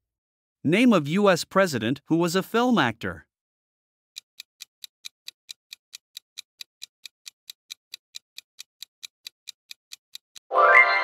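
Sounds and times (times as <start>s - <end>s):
timer ticking clicks: 4.2s - 10.5s.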